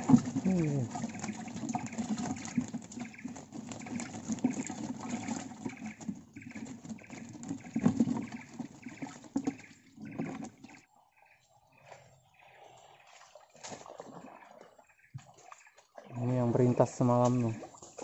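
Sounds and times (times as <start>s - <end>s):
water splashing and sloshing: 0.0s - 18.0s.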